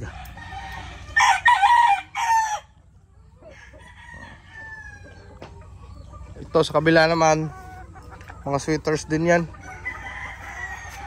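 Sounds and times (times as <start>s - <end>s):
chickens clucking and calling: 0.0s - 11.0s
rooster crowing: 0.3s - 2.8s, 3.5s - 5.2s, 9.7s - 11.0s.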